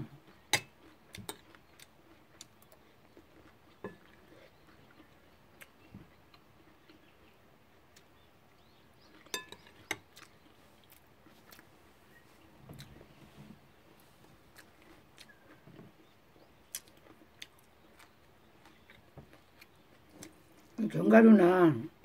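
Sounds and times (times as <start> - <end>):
chewing food: 0.0 - 20.8.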